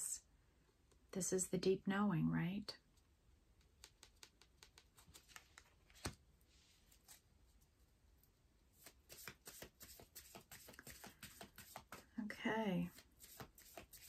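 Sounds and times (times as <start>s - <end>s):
cards clicking while shuffled: 3.6s - 6.2s, 8.8s - 12.1s, 13.0s - 14.0s.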